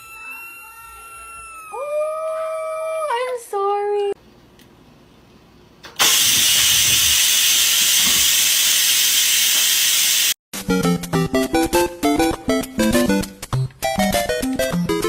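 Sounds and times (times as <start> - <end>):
loud steady hiss: 6.0 - 10.4
music with plucked notes: 10.6 - 15.0.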